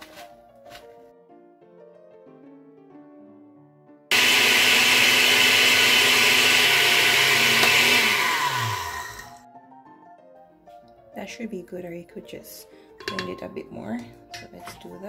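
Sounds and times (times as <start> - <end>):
soft background music: 0.0 - 4.1, 9.4 - 15.0
blender grinding oats: 4.1 - 9.4.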